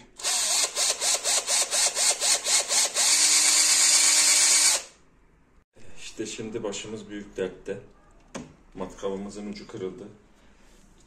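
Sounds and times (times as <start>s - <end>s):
cordless drill boring into plastic: 0.2s - 4.9s.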